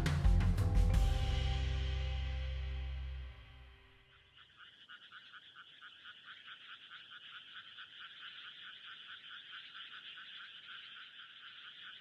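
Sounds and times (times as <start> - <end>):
frogs calling in chorus: 4.0 - 12.0.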